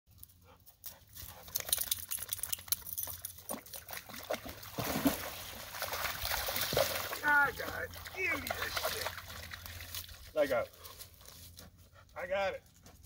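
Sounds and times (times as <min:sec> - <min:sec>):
dog splashing in water: 0:01.7 - 0:10.3.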